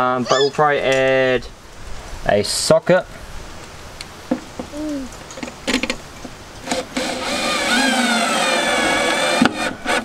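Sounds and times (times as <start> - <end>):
cordless drill driving screw: 6.7 - 10.0.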